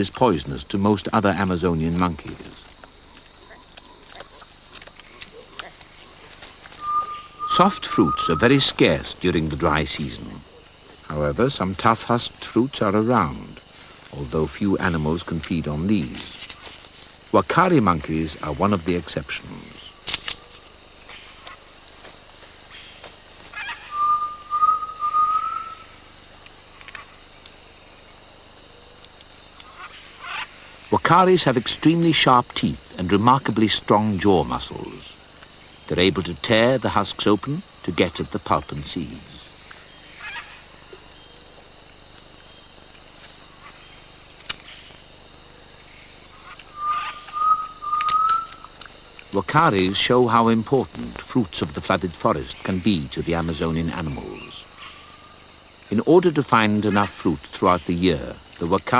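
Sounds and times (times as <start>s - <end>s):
high insect drone: 0.0s - 58.9s
long whistled animal call: 6.7s - 8.8s, 23.6s - 25.9s, 46.4s - 48.6s.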